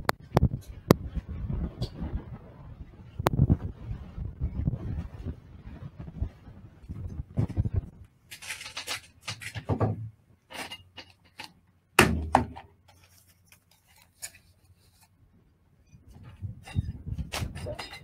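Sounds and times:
equipment handling clicks and rustles: 8.3 - 9.7
loud thump: 12.0 - 12.6.

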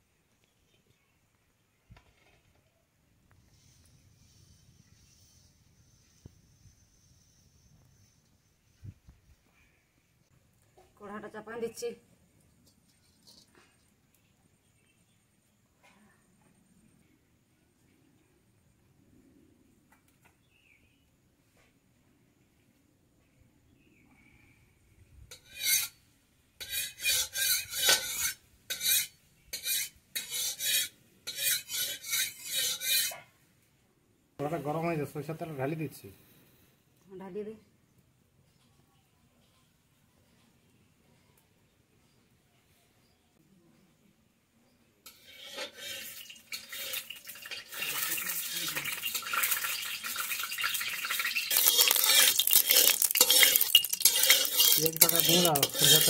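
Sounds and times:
rasping scraping strokes: 25.3 - 26.0, 26.6 - 33.2, 45.1 - 47.8, 51.4 - 56.0
food sizzling in hot oil: 26.6 - 33.1, 45.1 - 56.0.

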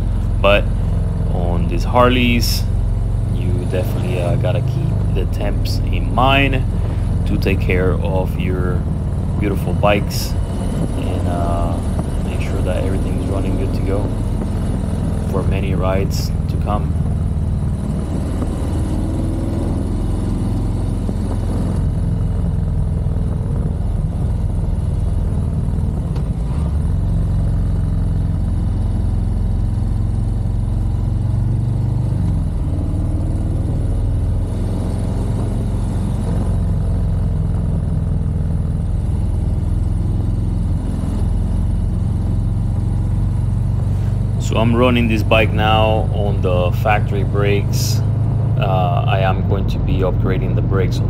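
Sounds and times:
motorcycle engine revving: 0.0 - 51.0.

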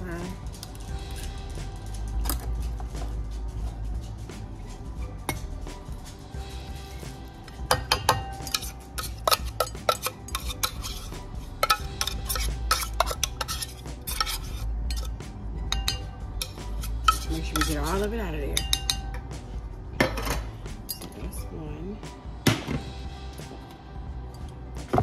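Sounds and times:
metal can clinking against bowl: 7.7 - 11.0.

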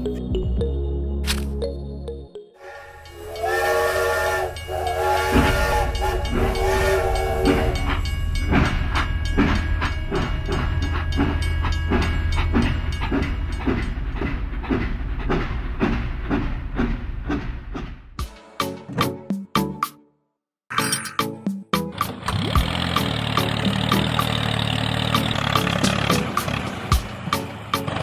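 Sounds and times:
steam train whistle chord: 2.6 - 8.0
steam train chugging: 2.6 - 18.0.

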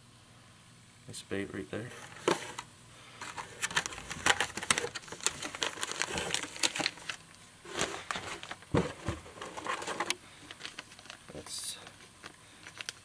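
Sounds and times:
plastic packaging crinkling: 3.2 - 13.0.

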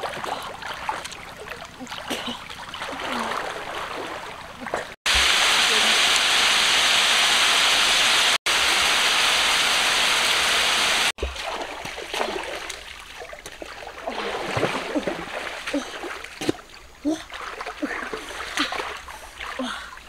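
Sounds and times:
river water: 0.0 - 20.0.

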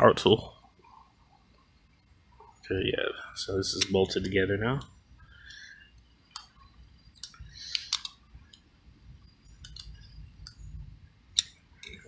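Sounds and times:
screwdriver clicking on metal: 7.2 - 8.2.

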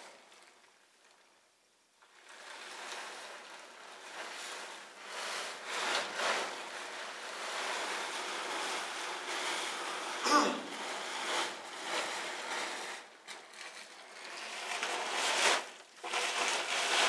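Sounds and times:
plastic tarp rustling and flapping: 0.0 - 17.0.

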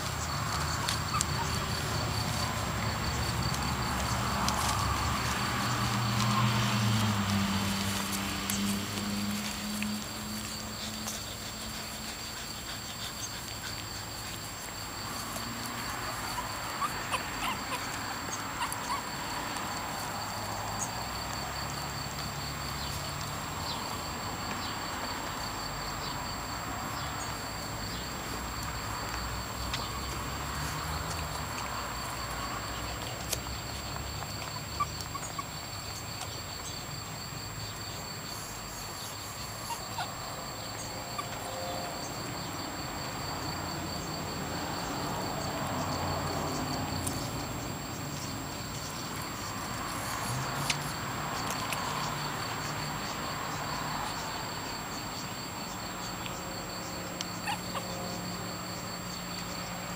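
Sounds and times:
faint ticks and rustles: 0.0 - 21.5, 27.0 - 42.2
high-pitched pulsing insect chirr: 34.5 - 59.9.

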